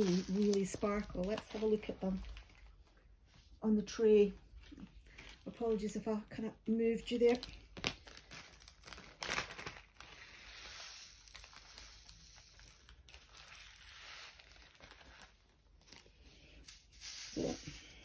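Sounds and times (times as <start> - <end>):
beads spreading in plastic tray: 0.0 - 2.3, 10.1 - 15.4, 16.0 - 18.0
plastic bag rustling: 0.0 - 3.6, 4.2 - 18.0.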